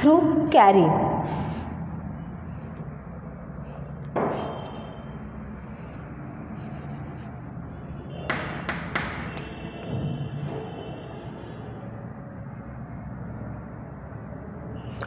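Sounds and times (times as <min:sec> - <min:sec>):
steady low hum: 0:00.0 - 0:14.9
chalk tapping on chalkboard: 0:04.1 - 0:05.0, 0:06.6 - 0:07.4, 0:08.3 - 0:09.7.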